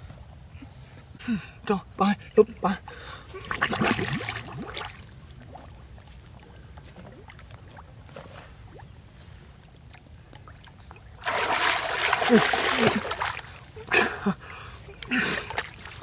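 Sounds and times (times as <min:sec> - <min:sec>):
faint bubbling and lapping water: 0:02.4 - 0:16.0
water splashing: 0:03.4 - 0:09.0, 0:09.8 - 0:14.3.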